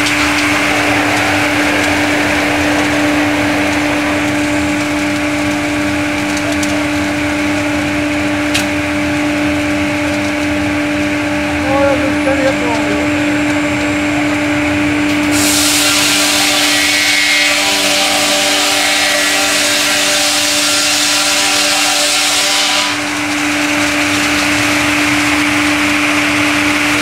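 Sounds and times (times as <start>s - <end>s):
sawmill humming: 0.0s - 27.0s
saw blades cutting timber: 15.3s - 27.0s.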